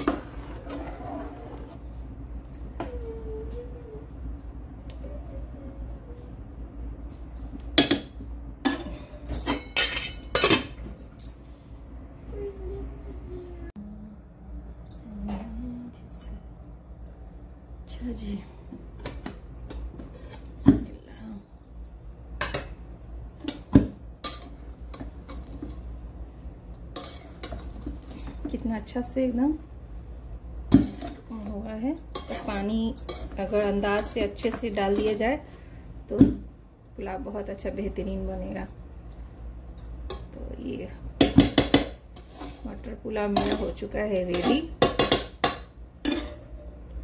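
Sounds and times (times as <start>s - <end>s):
spatula scraping a metal pot: 0.0s - 1.8s, 20.0s - 20.5s, 27.0s - 27.7s, 32.1s - 34.1s, 42.2s - 42.8s
low steady hum: 0.0s - 47.0s
metal clanking on cooking pot: 43.3s - 46.6s.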